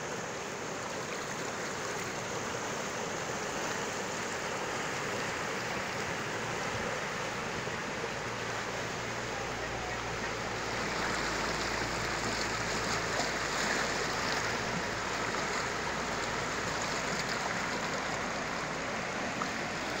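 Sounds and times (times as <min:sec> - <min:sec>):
river water rushing: 0:00.0 - 0:20.0.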